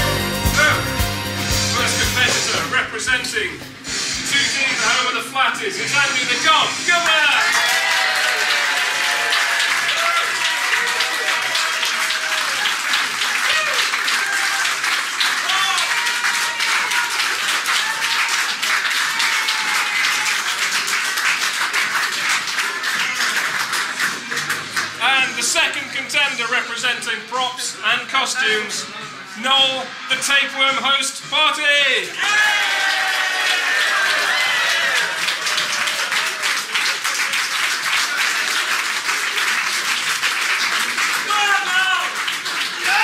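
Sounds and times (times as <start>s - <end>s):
audience clapping: 1.7s - 2.7s, 7.0s - 25.4s, 32.1s - 43.0s.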